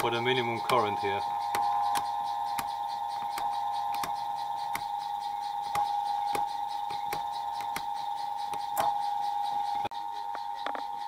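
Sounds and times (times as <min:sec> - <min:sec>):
phase converter electrical whine: 0:00.0 - 0:11.0
selector switch clicks: 0:01.5 - 0:04.9.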